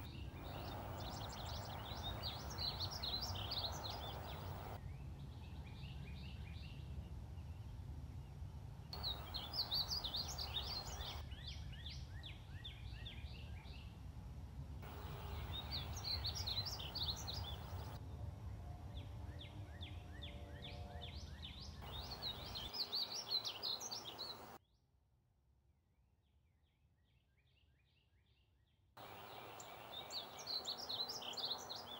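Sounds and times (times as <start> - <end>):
bird warbling song: 0.0 - 4.8, 9.0 - 13.8, 14.9 - 18.0, 21.4 - 24.6, 29.0 - 31.9.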